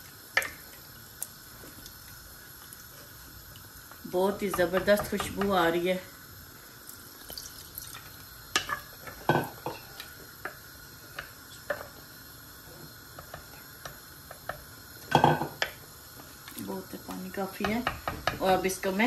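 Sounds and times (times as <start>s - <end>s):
low sizzle: 0.0s - 19.0s
spoon stirring and scraping pot: 4.2s - 5.7s.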